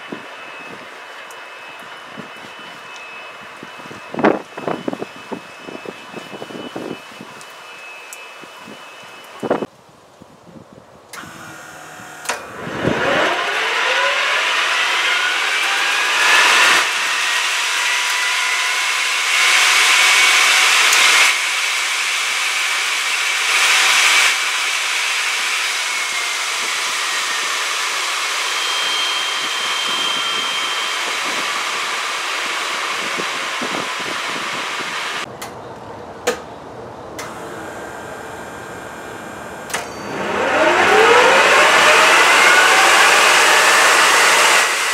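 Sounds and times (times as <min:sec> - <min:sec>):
turbojet engine whine: 0:00.0 - 0:09.7, 0:11.1 - 0:44.9
rushing surges: 0:40.0 - 0:44.9.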